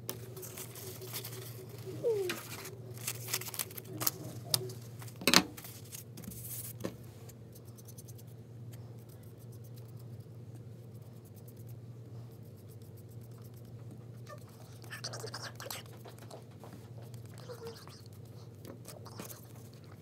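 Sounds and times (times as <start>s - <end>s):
low room hum: 0.0s - 20.0s
paintbrush scratching on paper: 7.5s - 16.3s.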